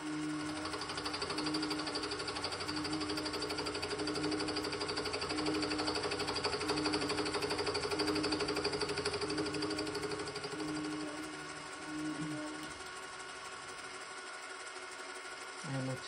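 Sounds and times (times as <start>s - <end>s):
milling machine motor running: 0.0s - 16.0s
milling cutter chattering on metal: 0.4s - 12.6s.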